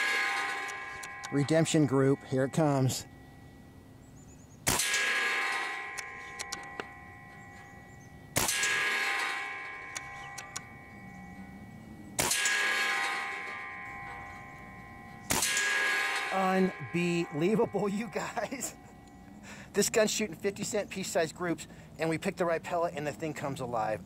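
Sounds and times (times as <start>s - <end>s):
air rifle shot with metallic ringing: 0.0s - 3.8s, 4.6s - 19.2s.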